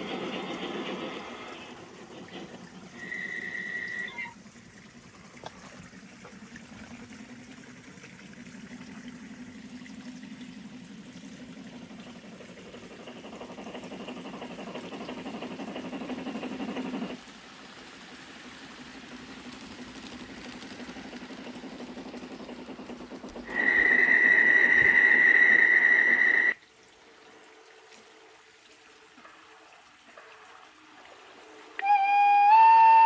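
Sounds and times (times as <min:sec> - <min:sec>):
model train running hum with hiss: 0:00.0 - 0:33.0
short high tone: 0:31.8 - 0:33.0.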